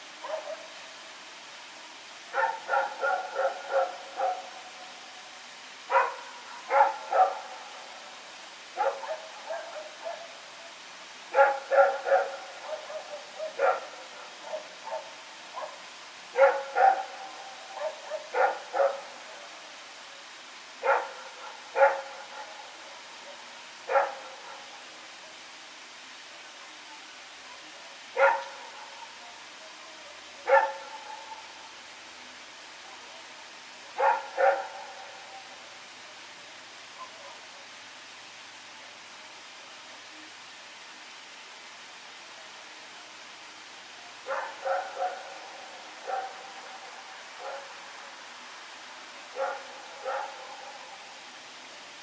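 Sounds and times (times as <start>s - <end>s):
dog barking: 0.2s - 0.7s, 2.3s - 4.5s, 5.9s - 7.5s, 8.8s - 10.3s, 11.3s - 19.1s, 20.8s - 22.6s, 23.9s - 24.7s, 28.2s - 28.8s, 30.4s - 31.4s, 34.0s - 35.1s, 44.2s - 45.4s, 46.0s - 46.8s, 47.4s - 47.8s, 49.3s - 50.9s.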